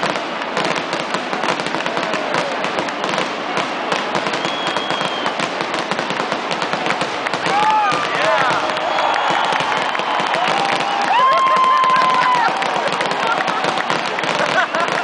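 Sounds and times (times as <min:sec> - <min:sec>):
fireworks bursting and crackling: 0:00.0 - 0:15.0
high firework whistle: 0:03.9 - 0:05.7, 0:07.3 - 0:15.0.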